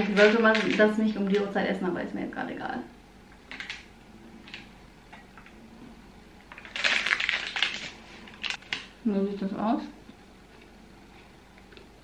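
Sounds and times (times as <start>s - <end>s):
plastic wrapper crinkling: 0.0s - 1.6s, 3.5s - 3.9s, 6.5s - 9.0s
sharp crackles: 6.5s - 8.9s.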